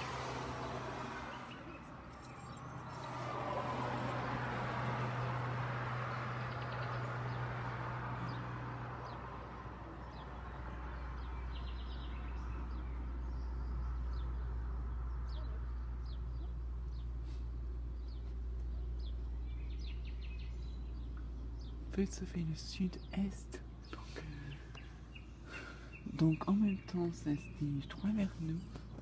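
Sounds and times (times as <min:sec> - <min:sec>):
car passing: 0:00.0 - 0:29.0
small birds chirping: 0:05.9 - 0:29.0.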